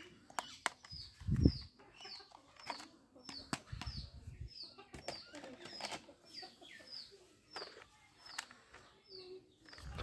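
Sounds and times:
small bird chirping: 0.0 - 10.0
plastic toy guns clicking: 0.2 - 1.1, 2.3 - 3.9, 5.0 - 6.1, 7.6 - 8.8.

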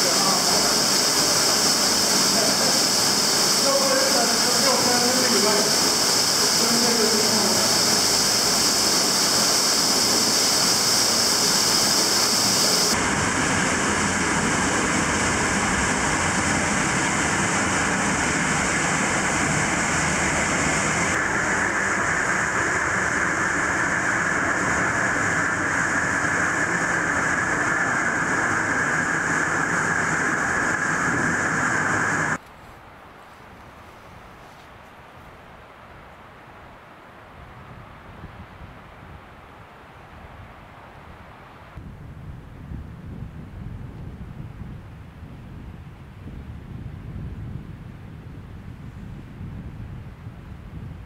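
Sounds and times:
water rushing through cave passage: 0.0 - 13.0.

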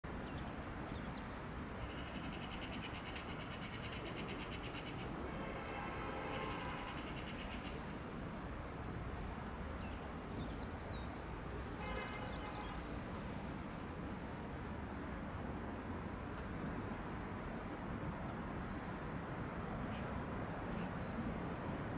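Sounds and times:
small birds trilling and chirping: 9.2 - 12.9, 19.4 - 21.9.

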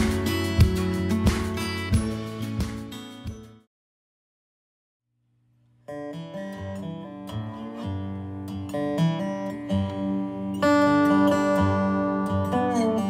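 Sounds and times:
lap steel resonator guitar: 5.9 - 13.0.

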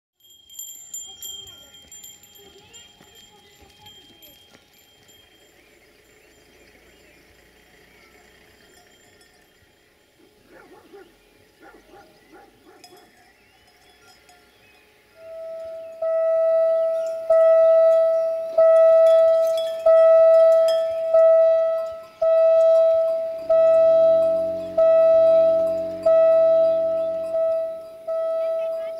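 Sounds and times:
level crossing warning bell: 0.2 - 10.2, 12.8 - 28.9
low steady hum: 15.1 - 28.9.

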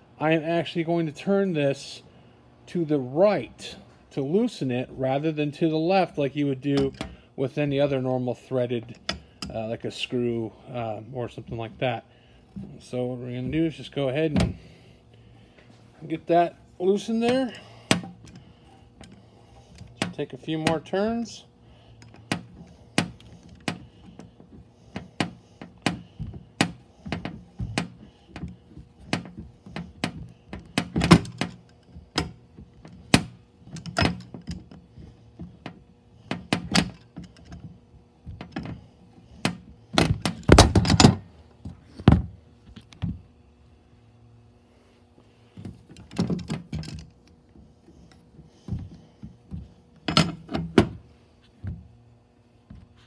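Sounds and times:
faint steady hum: 0.0 - 53.0.

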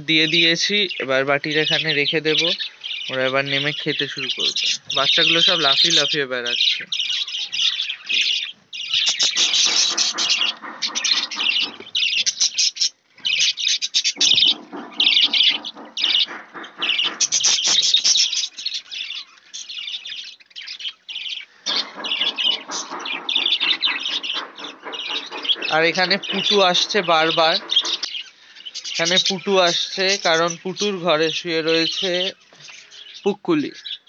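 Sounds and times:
budgerigars chattering and chirping: 0.0 - 34.0.

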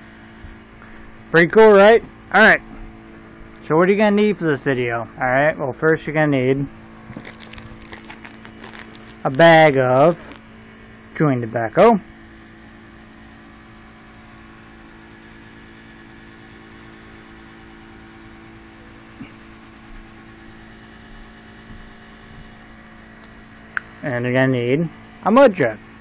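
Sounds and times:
low electrical hum with hiss: 0.0 - 14.6.

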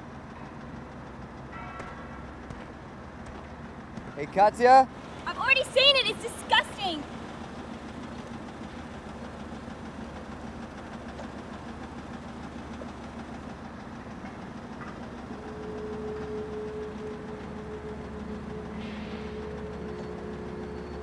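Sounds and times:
low mechanical hum: 4.9 - 21.0.

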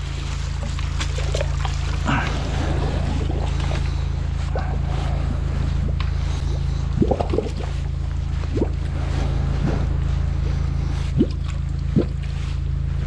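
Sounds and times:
water jetting in pipe: 0.0 - 10.0, 10.7 - 13.0
water gurgling and bubbling: 0.0 - 12.9
drain jetter engine drone: 0.0 - 13.0.

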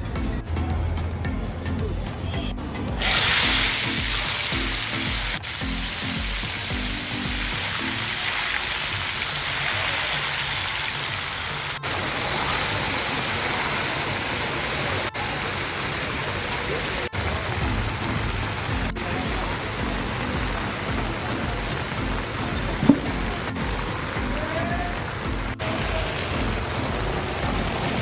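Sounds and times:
potatoes sizzling in oil: 3.0 - 15.1.

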